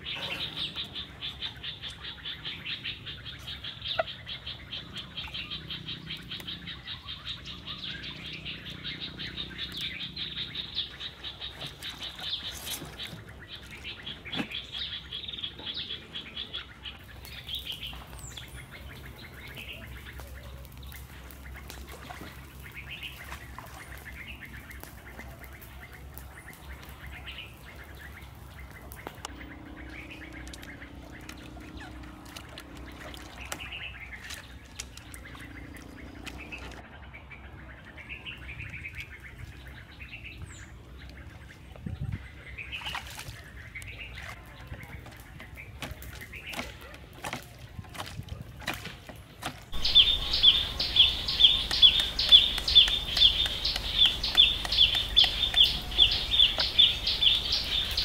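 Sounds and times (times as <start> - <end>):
birds chirping: 0.0 - 58.0.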